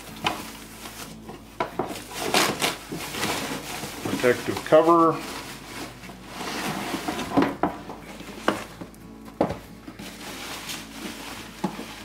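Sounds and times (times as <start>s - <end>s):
plastic bag rustling: 0.0s - 12.0s
cardboard box scraping: 1.9s - 8.8s, 9.9s - 12.0s
plastic knocking on cardboard: 7.3s - 8.7s, 9.4s - 9.7s.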